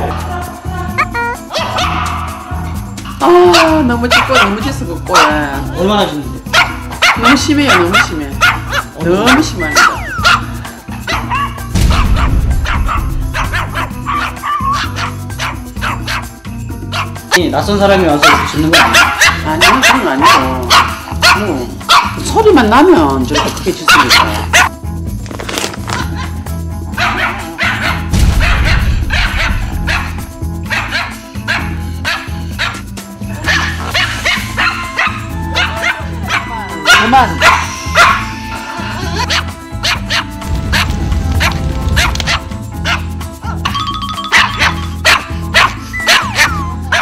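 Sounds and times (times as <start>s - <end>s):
background music with beat: 0.0s - 17.4s, 26.1s - 47.0s
dog barking: 1.2s - 2.6s, 3.5s - 5.6s, 6.5s - 16.3s, 16.9s - 17.4s, 18.1s - 22.2s, 23.3s - 24.8s, 27.0s - 32.8s, 33.4s - 38.3s, 39.2s - 43.7s, 44.3s - 47.0s
small dog yapping: 9.6s - 10.4s, 11.1s - 16.0s, 18.2s - 22.2s, 23.4s - 24.7s, 33.5s - 38.3s, 44.3s - 47.0s.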